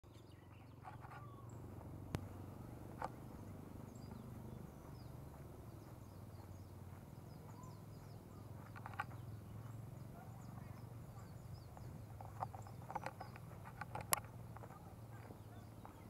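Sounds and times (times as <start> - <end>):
bird chirps: 0.0 - 16.0
sharp click: 12.2 - 14.7.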